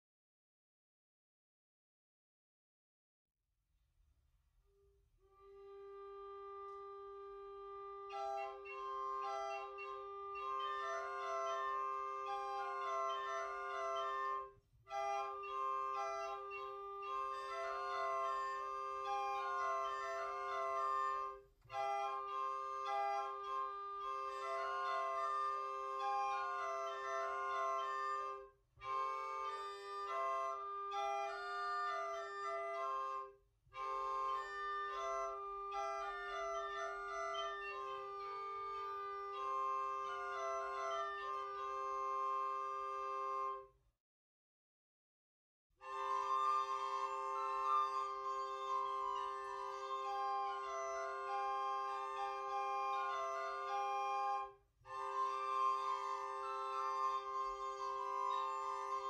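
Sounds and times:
portative organ melody over drone: 0:05.6 - 0:14.4, 0:15.0 - 0:21.3, 0:46.4 - 0:54.4.

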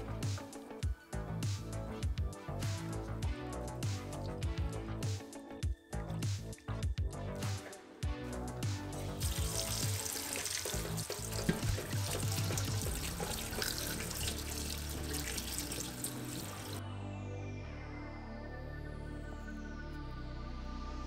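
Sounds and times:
tap water running: 0:09.0 - 0:16.8
meat splashing in sink water: 0:09.1 - 0:16.8.

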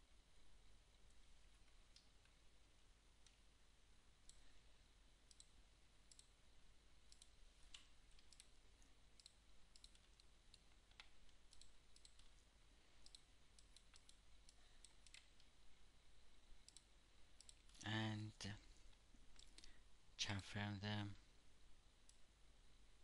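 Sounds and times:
computer mouse clicking: 0:05.3 - 0:06.3, 0:07.1 - 0:08.5, 0:09.2 - 0:12.4, 0:13.0 - 0:15.5, 0:16.6 - 0:17.8.

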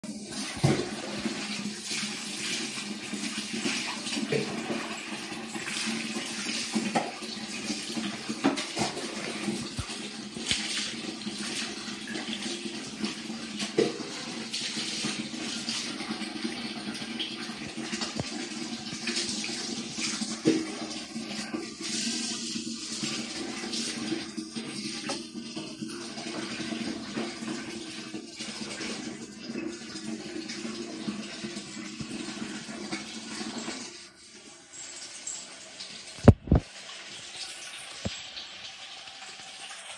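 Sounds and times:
tap water running into bucket: 0:00.0 - 0:39.9
water splashing on tiled floor: 0:00.3 - 0:25.2.

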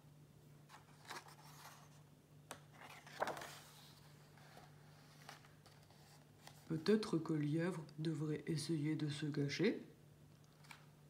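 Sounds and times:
book page turning: 0:00.7 - 0:07.1, 0:10.4 - 0:10.9.

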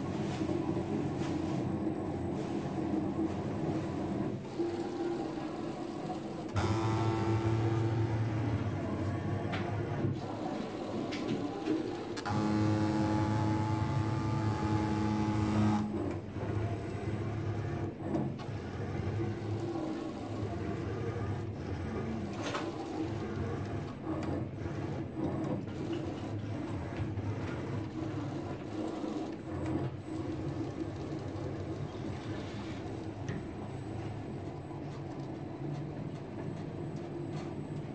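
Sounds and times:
cnc router motors running: 0:06.5 - 0:10.1, 0:12.2 - 0:16.1.

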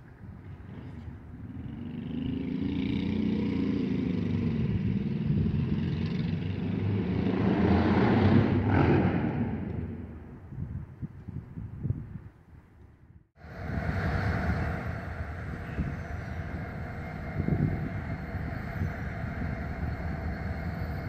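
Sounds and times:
vehicle driving past: 0:01.4 - 0:10.1, 0:13.4 - 0:21.0.

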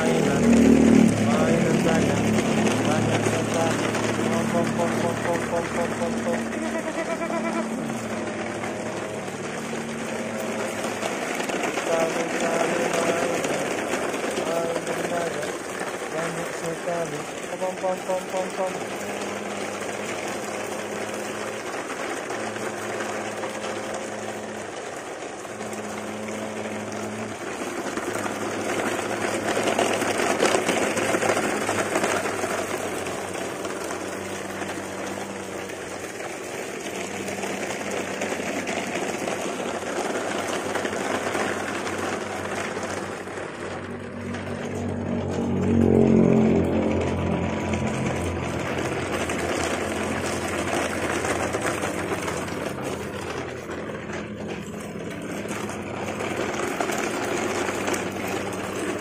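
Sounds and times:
toy trucks rattling over gravel: 0:00.0 - 0:59.0
low droning hum: 0:40.6 - 0:59.0.

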